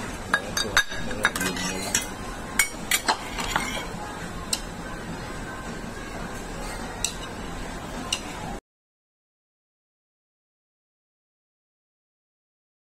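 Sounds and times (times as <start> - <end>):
dishes and cutlery clinking: 0.1 - 4.8, 6.5 - 7.4, 8.0 - 8.5.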